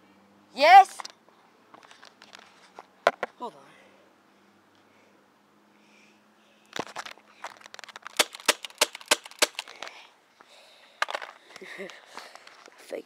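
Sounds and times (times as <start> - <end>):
airsoft gun firing: 8.2 - 9.6.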